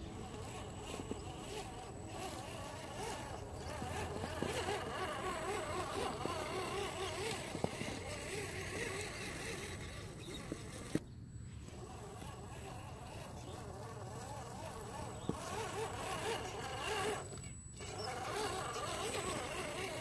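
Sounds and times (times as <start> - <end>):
electric motor and gears whining: 0.0 - 20.0
sharp clicks from toy car: 0.4 - 11.0.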